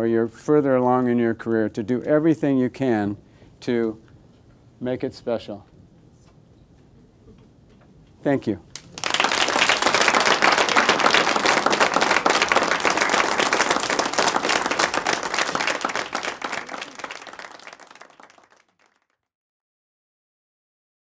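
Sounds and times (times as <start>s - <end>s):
audience applauding: 8.7s - 19.2s.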